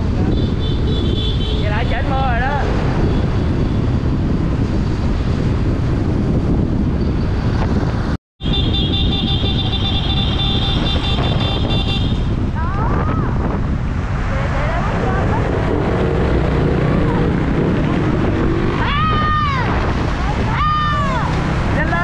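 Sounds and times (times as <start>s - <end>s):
wind and road noise: 0.0s - 22.0s
high horn-like tone: 8.4s - 12.4s.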